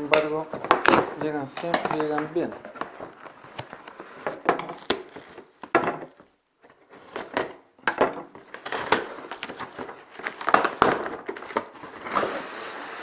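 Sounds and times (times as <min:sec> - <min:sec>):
cardboard box tearing and rustling: 0:08.5 - 0:13.0.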